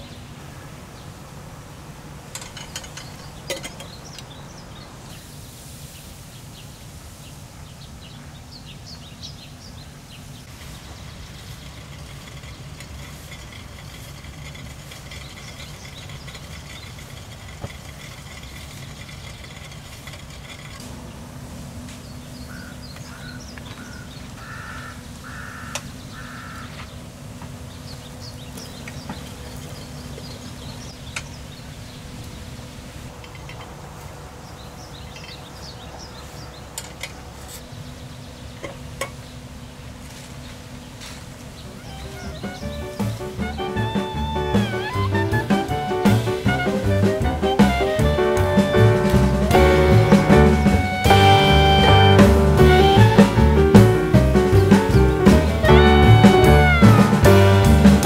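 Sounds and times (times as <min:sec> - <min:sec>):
small birds chirping: 0:00.0 - 0:58.0
crows cawing: 0:22.5 - 0:26.9
steady high buzz: 0:37.7 - 0:58.0.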